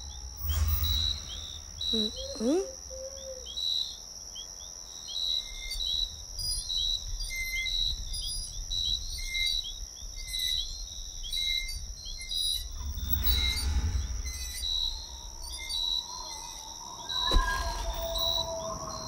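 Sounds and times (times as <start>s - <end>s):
low rumble: 0.0s - 2.9s, 12.6s - 19.0s
cricket trill: 0.0s - 19.0s.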